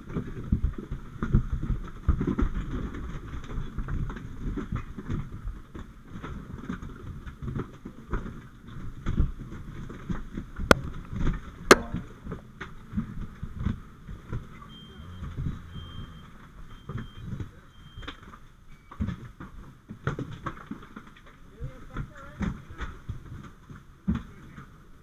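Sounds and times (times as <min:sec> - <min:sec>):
rubbing handling noise with knocks: 0:07.4 - 0:17.5
sharp cracks: 0:10.6 - 0:13.3
faint short high beeps: 0:14.6 - 0:18.1.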